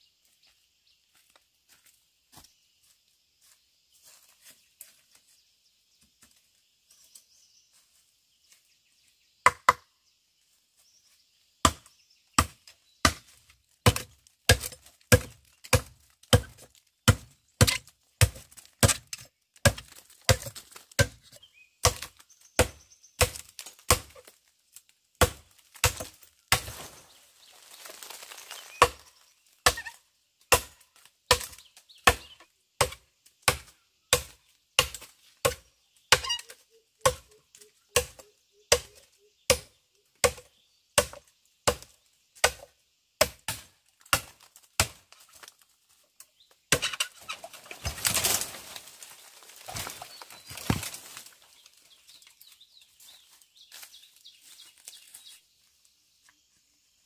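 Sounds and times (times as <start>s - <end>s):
hand hoe chopping into ground: 11.6s - 24.3s, 25.2s - 27.1s, 46.7s - 51.3s
soil scraping and rustling: 25.5s - 29.5s, 46.4s - 55.6s.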